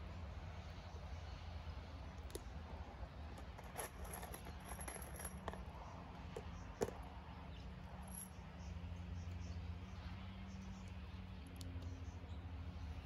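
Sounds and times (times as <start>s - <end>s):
screws rattling in plastic tub: 3.4s - 5.6s.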